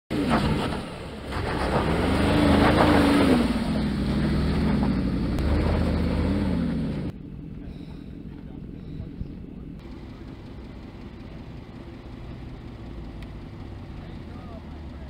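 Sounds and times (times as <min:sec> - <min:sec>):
engine revving under load: 0:00.1 - 0:07.2.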